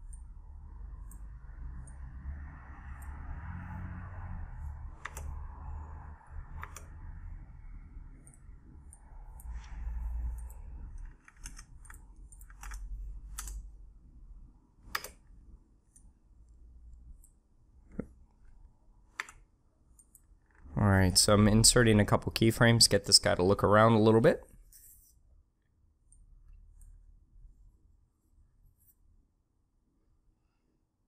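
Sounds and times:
computer mouse and keyboard clicks: 1.0s - 2.2s, 2.8s - 7.2s, 8.1s - 13.7s, 14.9s - 16.1s, 17.1s - 20.7s.

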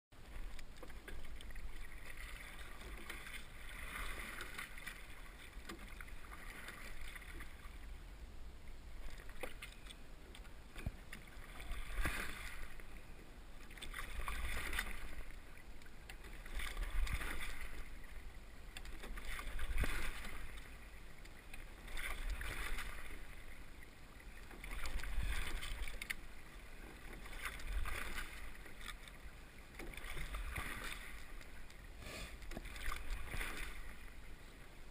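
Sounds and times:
oars splashing through water: 0.2s - 8.0s, 8.7s - 34.9s.

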